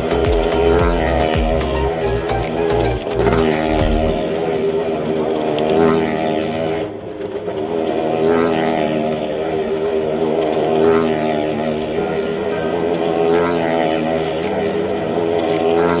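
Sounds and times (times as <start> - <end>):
motorcycle engine running: 0.0 - 6.8.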